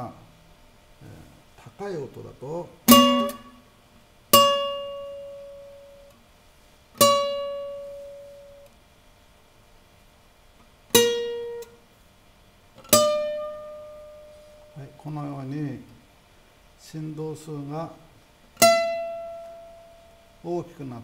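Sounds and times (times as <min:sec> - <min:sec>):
guitar plucked single notes: 0:02.9 - 0:03.7, 0:04.3 - 0:06.2, 0:07.0 - 0:08.7, 0:10.9 - 0:11.8, 0:12.8 - 0:15.0, 0:18.6 - 0:20.4.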